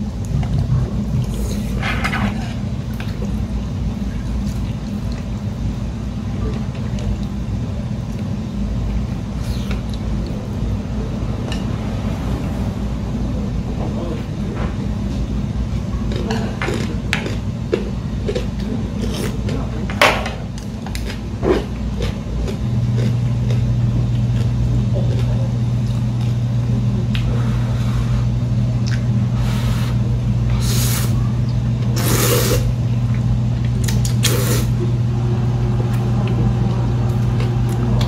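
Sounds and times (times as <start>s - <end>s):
steady low hum: 0.0s - 38.0s
noodles being slurped: 32.0s - 32.7s, 33.8s - 34.8s.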